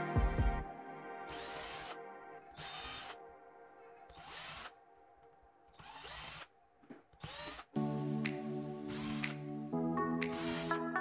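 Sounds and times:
cordless drill drilling into wood: 1.3s - 3.2s, 4.1s - 4.8s, 5.7s - 6.5s, 7.2s - 7.7s, 8.9s - 9.4s, 10.3s - 10.8s.

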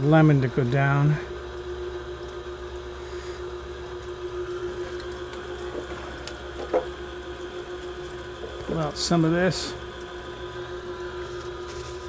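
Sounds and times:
juicer motor humming: 0.0s - 12.0s
short loud juicer noise: 2.8s - 12.0s.

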